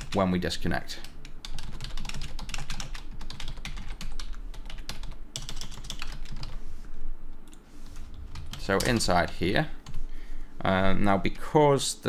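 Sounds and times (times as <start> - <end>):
computer keyboard typing: 0.0 - 0.2, 1.0 - 6.6, 8.0 - 10.0.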